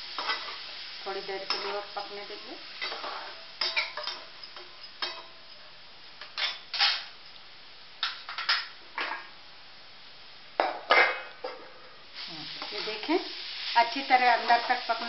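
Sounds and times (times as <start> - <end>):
metal spatula scraping a pan: 1.3 - 5.7.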